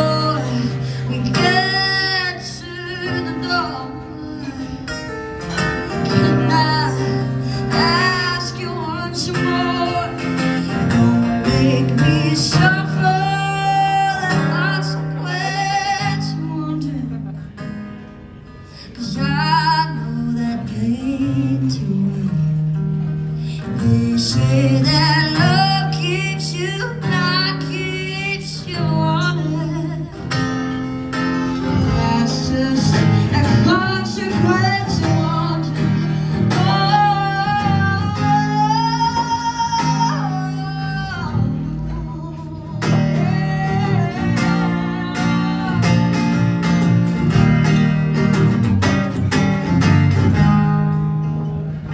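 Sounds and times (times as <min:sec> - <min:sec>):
woman singing: 0:00.0 - 0:04.9, 0:06.0 - 0:10.3, 0:10.9 - 0:17.1, 0:23.6 - 0:30.3, 0:31.6 - 0:46.3
acoustic guitar: 0:00.0 - 0:51.9.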